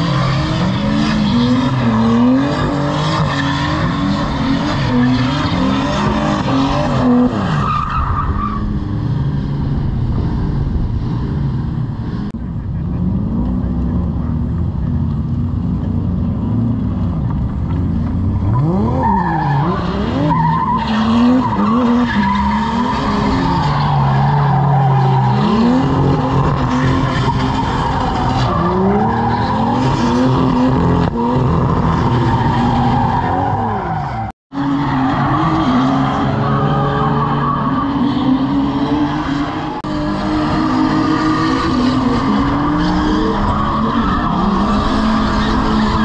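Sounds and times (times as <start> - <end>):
car engines revving: 0.0 - 46.0
tyres skidding and screeching: 0.0 - 46.0.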